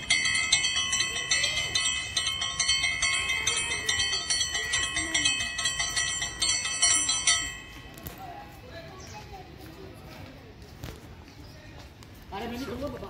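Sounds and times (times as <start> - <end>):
temple bell rung rapidly: 0.0 - 8.7.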